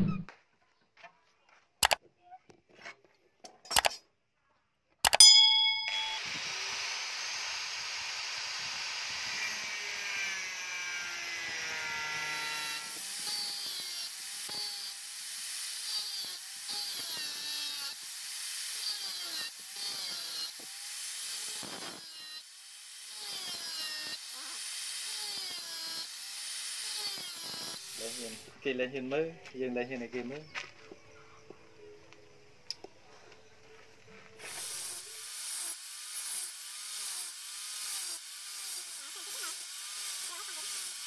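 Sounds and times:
grinder disc cutting metal: 0:05.1 - 0:28.5, 0:34.4 - 0:41.0
angle grinder whine: 0:05.7 - 0:28.5, 0:34.4 - 0:41.0.

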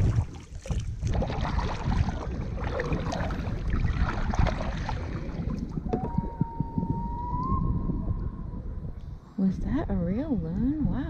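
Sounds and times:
paddle water splashes: 0:00.0 - 0:07.6
wind rumble on microphone: 0:00.0 - 0:11.0.

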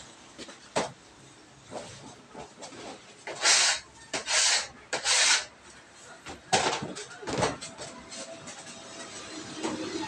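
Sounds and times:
metal blade scraping table: 0:03.3 - 0:05.5.

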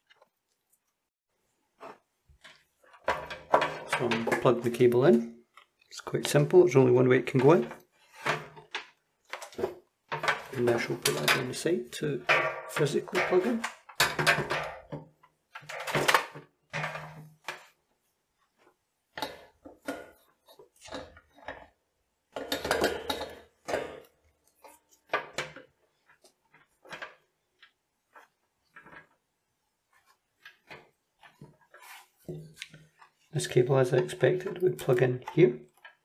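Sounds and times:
plastic and cable clicks and rattles: 0:07.3 - 0:17.8.

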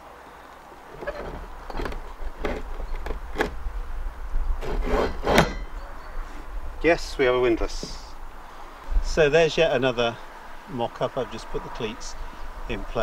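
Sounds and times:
metal knocks and scrapes on deck: 0:00.9 - 0:03.6, 0:04.6 - 0:05.7.

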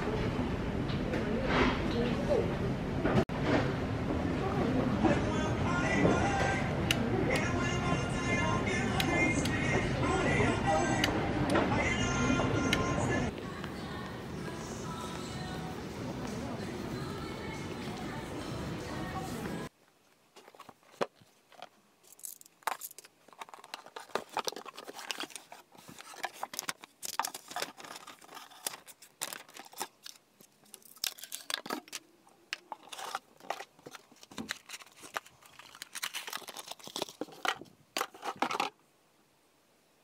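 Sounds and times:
cardboard and packaging rustling: 0:20.3 - 0:38.8.

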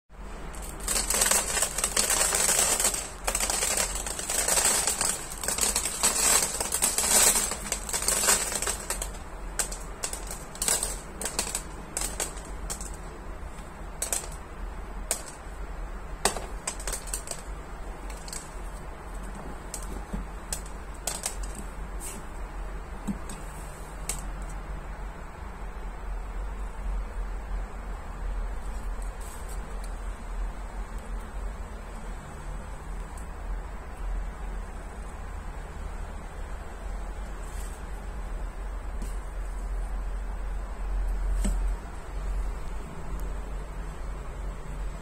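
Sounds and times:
litter pellets rattling on plastic: 0:00.5 - 0:15.5, 0:16.2 - 0:21.8
pellets clicking: 0:00.5 - 0:15.6, 0:16.2 - 0:21.8.

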